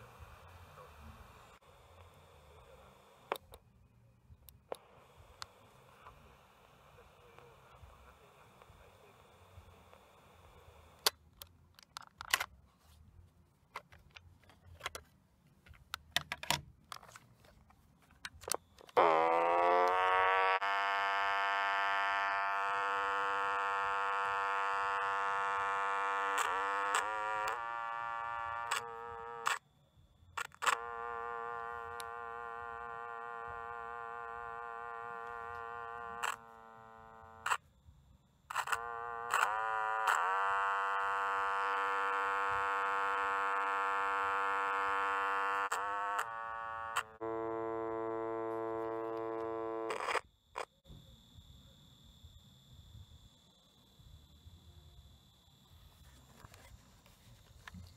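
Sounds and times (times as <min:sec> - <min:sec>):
steady electronic buzz tone: 0:00.0 - 0:03.5, 0:04.6 - 0:11.2, 0:18.4 - 0:57.9
cassette plastic clicks and rattles: 0:11.0 - 0:12.5, 0:15.7 - 0:17.2.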